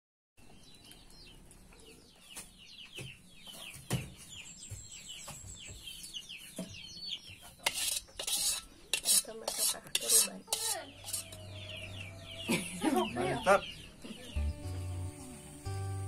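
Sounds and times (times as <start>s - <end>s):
chicks peeping: 0.4s - 15.8s
metal ladle scraping wok: 7.6s - 11.7s.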